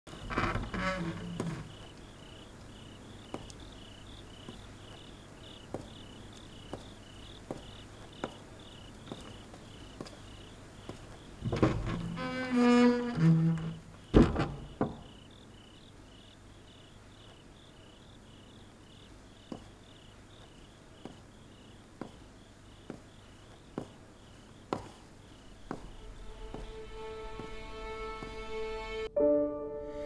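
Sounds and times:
crickets chirping: 0.1 - 29.0
knocks: 14.1 - 15.2
low bowed string phrase: 25.9 - 30.0.

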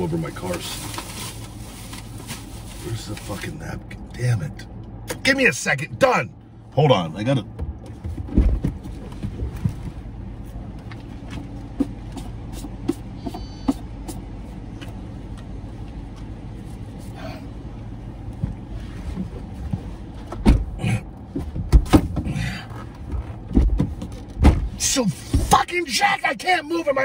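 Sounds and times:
low hum in car cabin: 0.0 - 27.0
food packaging rustling: 0.3 - 3.3.

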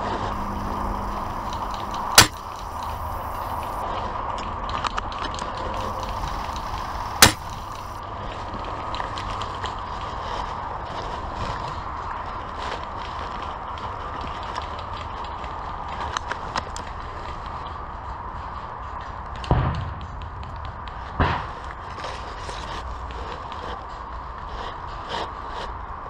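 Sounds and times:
background hiss: 0.3 - 3.8, 5.8 - 8.0
airsoft rifle shots: 0.4 - 3.8, 5.8 - 8.0, 19.5 - 21.8.

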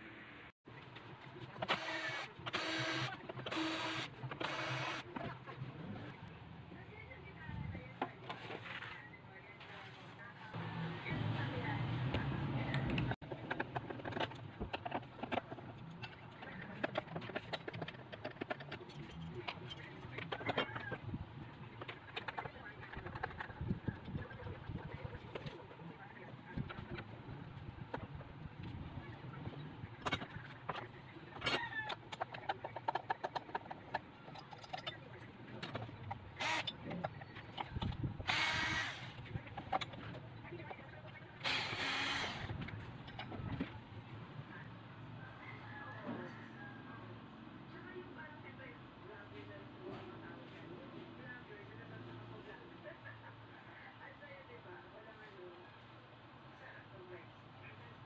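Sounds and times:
cordless drill driving a screw: 1.7 - 5.0, 36.4 - 36.7, 38.3 - 39.1, 41.4 - 42.5.

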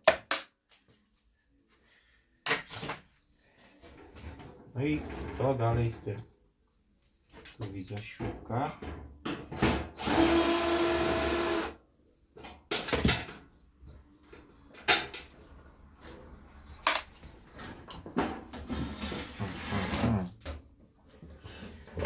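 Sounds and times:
electric drill running: 10.0 - 11.8.

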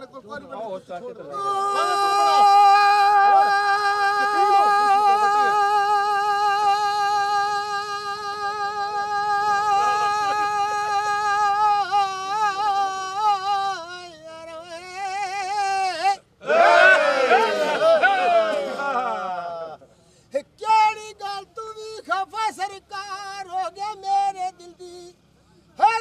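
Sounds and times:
faint men's voices: 0.0 - 26.0
man singing in high voice: 1.3 - 16.3, 20.4 - 26.0.

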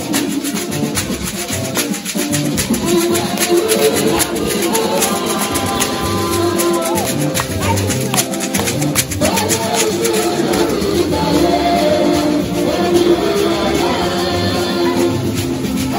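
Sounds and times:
beaded gourd rattle shaken: 0.0 - 12.9.

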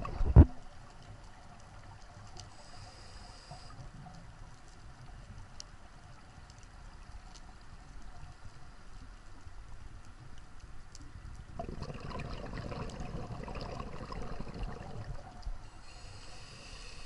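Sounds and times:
underwater rumble and hiss: 0.0 - 17.0
soft ticks: 0.6 - 11.5.

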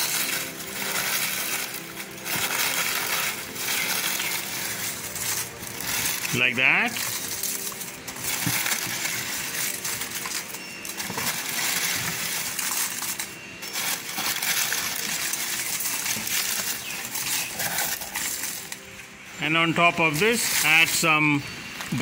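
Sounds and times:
dry leaves crackling and rustling: 0.0 - 22.0.

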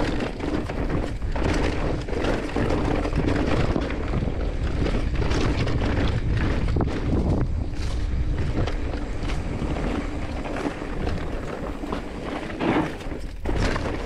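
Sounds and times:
bike knocking and rattling over stones: 0.0 - 14.0
wind rumble on microphone: 0.0 - 14.0.

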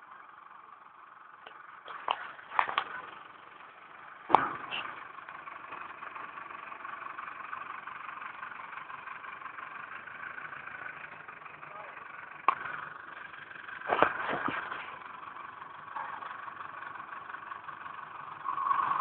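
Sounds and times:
digger engine running: 0.0 - 19.0
sharp knocks: 4.3 - 4.9.

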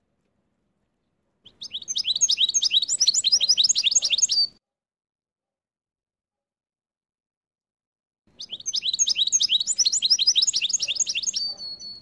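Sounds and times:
bird singing twittering notes: 1.4 - 4.6, 8.4 - 12.0.

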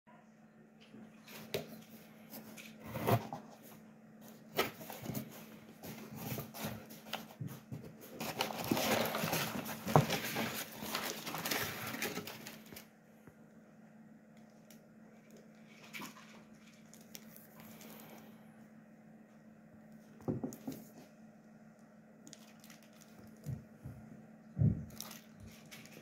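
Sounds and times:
faint steady hum: 0.1 - 26.0
paper and plastic crinkling: 1.2 - 12.9, 15.2 - 18.1, 22.3 - 23.7, 24.8 - 26.0.

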